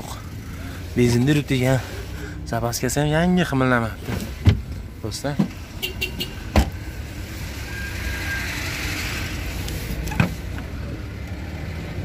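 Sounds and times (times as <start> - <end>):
vehicle passing: 5.6 - 12.0.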